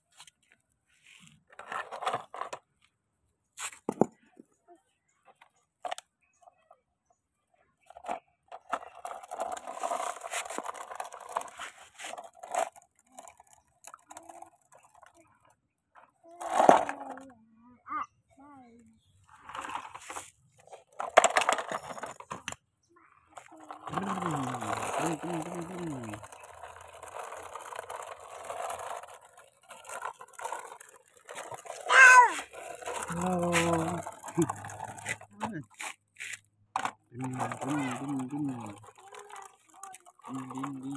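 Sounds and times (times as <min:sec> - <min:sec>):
brick scraping on plastic: 0:08.0 - 0:15.1, 0:19.0 - 0:22.6, 0:23.4 - 0:40.9
high-pitched cry: 0:31.8 - 0:32.5.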